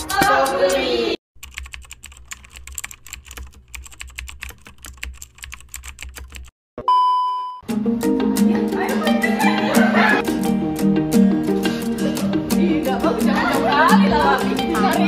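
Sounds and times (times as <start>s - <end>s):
music: 0.0s - 1.2s, 7.6s - 15.0s
typewriter keys clacking: 1.4s - 6.5s.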